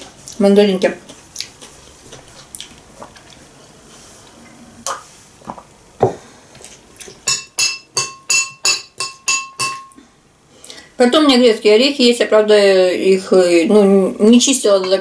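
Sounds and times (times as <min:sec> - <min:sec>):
metal spoon clinking on glass bowl: 0:07.2 - 0:10.0.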